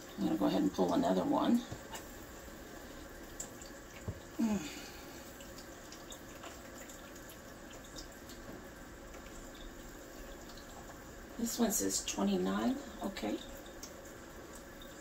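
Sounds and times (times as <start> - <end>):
person humming: 4.4 - 4.9.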